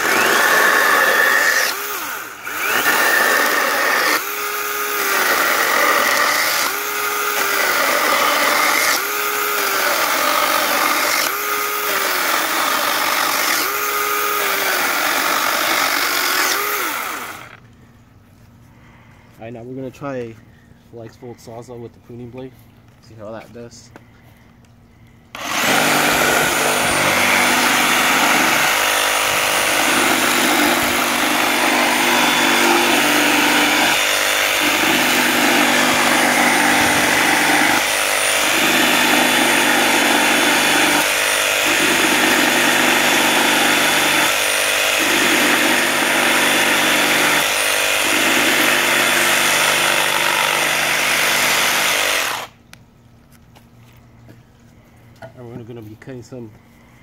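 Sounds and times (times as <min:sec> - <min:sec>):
reciprocating saw cutting wood: 0:00.0 - 0:17.6, 0:25.3 - 0:52.6.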